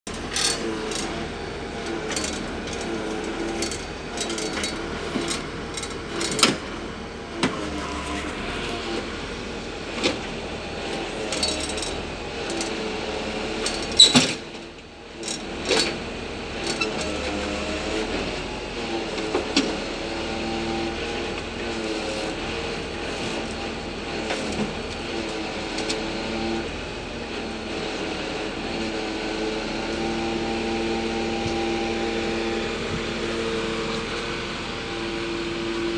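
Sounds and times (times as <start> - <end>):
hydraulic crane drone: 20.2 - 35.9.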